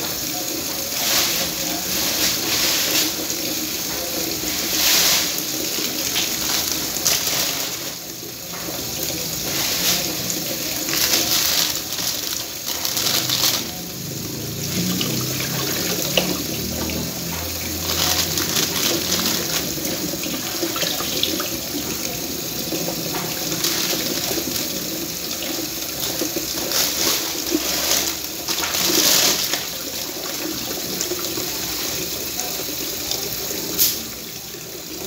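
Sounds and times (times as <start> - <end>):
tap water running into sink: 0.0 - 35.0.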